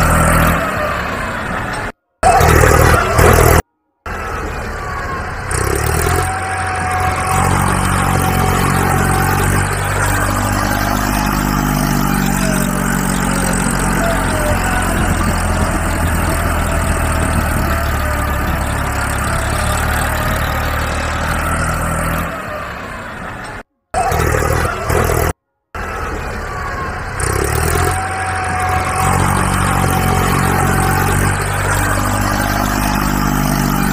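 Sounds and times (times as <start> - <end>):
heavy engine idling: 0.0 - 33.9.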